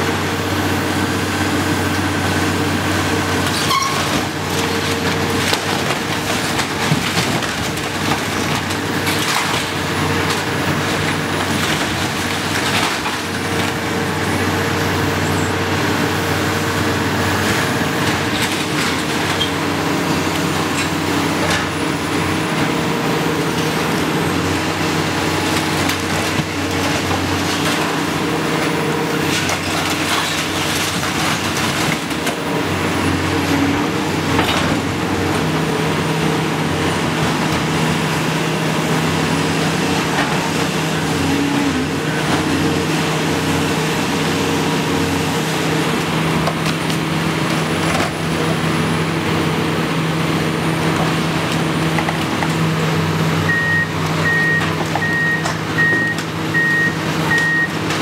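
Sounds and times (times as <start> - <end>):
excavator diesel engine running: 0.0 - 58.0
falling debris crashing: 3.4 - 13.9, 18.0 - 43.6
reversing alarm beeping: 53.5 - 57.8.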